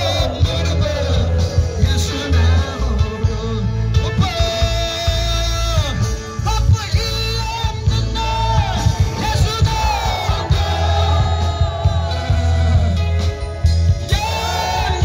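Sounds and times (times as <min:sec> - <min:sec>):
crowd voices: 0:00.0 - 0:15.0
gospel music over loudspeakers: 0:00.0 - 0:15.0.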